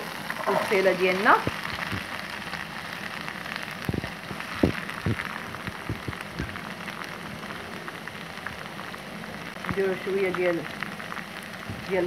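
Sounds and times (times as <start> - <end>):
onions sizzling in hot oil: 0.0 - 12.0
low thumps: 1.4 - 2.1, 3.8 - 6.6.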